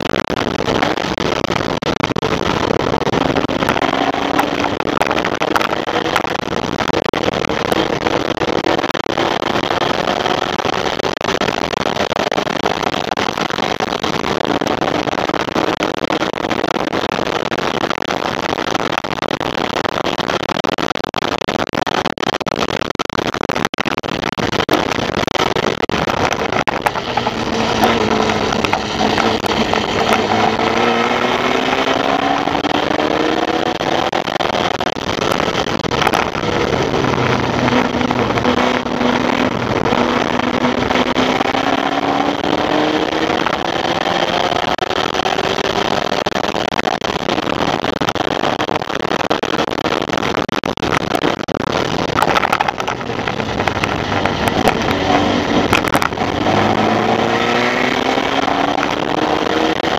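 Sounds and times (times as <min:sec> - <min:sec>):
road noise: 0:00.0 - 0:59.9
wind rush: 0:24.8 - 0:45.9, 0:51.7 - 0:59.9
race car engine running hard: 0:26.2 - 0:34.8, 0:35.5 - 0:44.6, 0:52.6 - 0:59.9.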